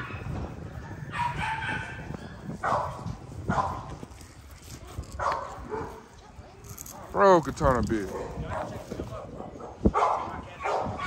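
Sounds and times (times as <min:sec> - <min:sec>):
dog barking: 0:01.0 - 0:03.9, 0:05.2 - 0:06.1, 0:08.1 - 0:11.0.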